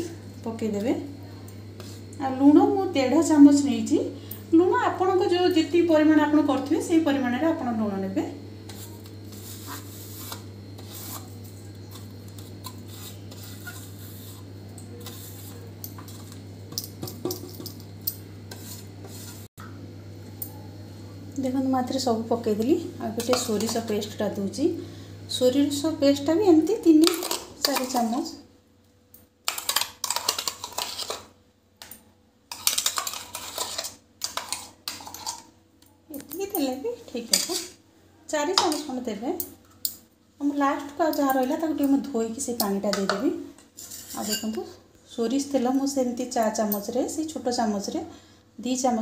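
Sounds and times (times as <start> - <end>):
steady low hum: 0.0 - 49.0
spoon scraping steel jar: 8.7 - 19.4, 29.5 - 31.3, 32.5 - 35.5, 37.3 - 37.8, 43.8 - 44.6.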